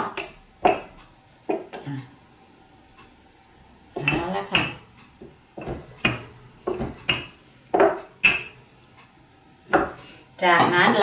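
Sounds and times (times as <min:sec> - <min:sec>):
rolling pin knocking on wooden board: 0:04.0 - 0:08.0.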